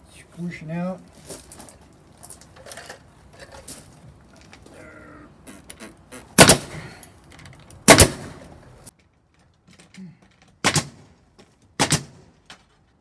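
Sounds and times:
pneumatic nail gun firing: 6.4s - 6.9s, 7.8s - 8.4s, 10.6s - 11.0s, 11.8s - 12.3s.

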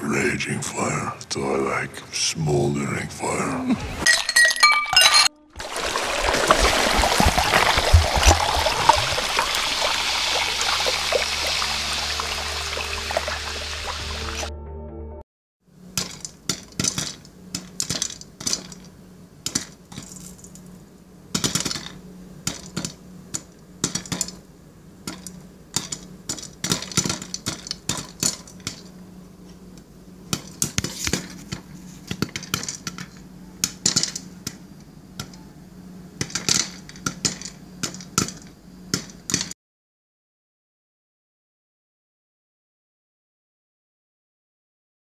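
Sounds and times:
steady low hum: 0.0s - 4.0s, 7.1s - 39.3s
popcorn popping: 15.8s - 35.4s, 36.1s - 39.5s.

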